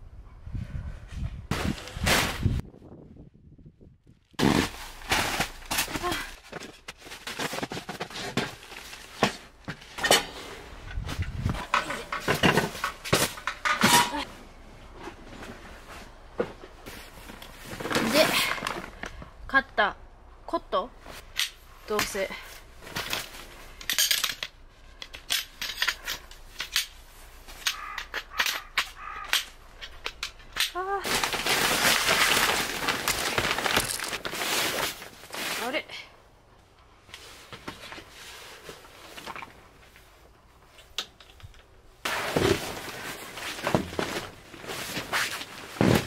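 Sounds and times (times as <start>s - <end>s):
camping gear rustling: 4.2s - 19.4s, 21.0s - 46.0s
metal poles clinking: 10.9s - 14.3s, 23.0s - 30.8s.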